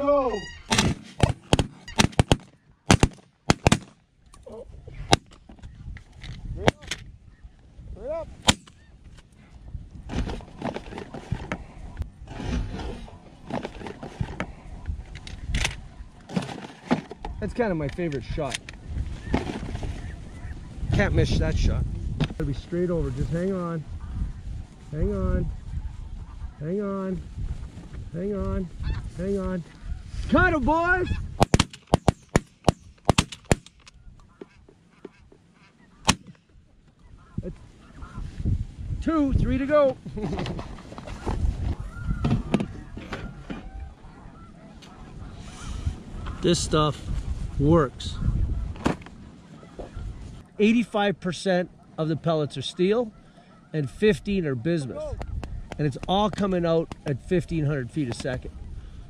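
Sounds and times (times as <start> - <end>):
goose honking: 0.0 - 0.8, 34.2 - 36.1, 37.0 - 38.4, 41.0 - 46.6, 49.4 - 50.5
shotgun firing: 0.7 - 4.0
rough wind noise: 4.4 - 34.4, 36.1 - 50.5, 54.2 - 59.0.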